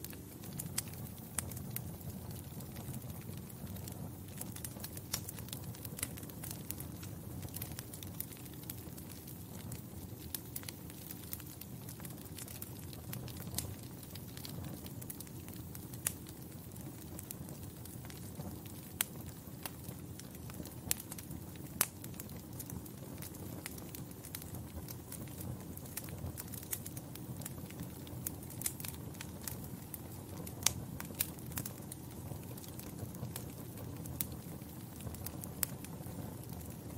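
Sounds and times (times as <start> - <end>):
wood fire crackling: 0.0 - 36.9.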